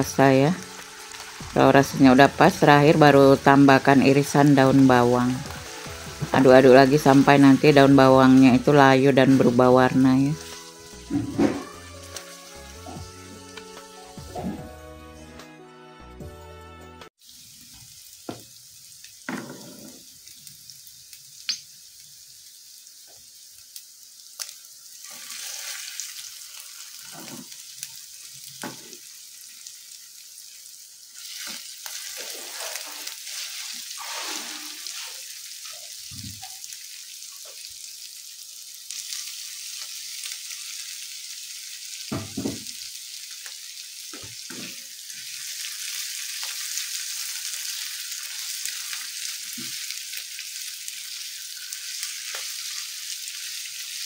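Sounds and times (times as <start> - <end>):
food sizzling in oil: 0.0 - 15.1, 17.0 - 54.0
spatula scraping a wok: 31.2 - 35.4.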